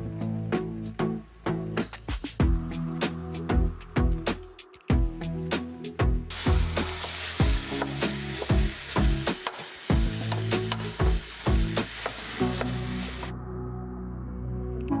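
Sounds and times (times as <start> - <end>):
meat sizzling in a skillet: 6.3 - 13.3.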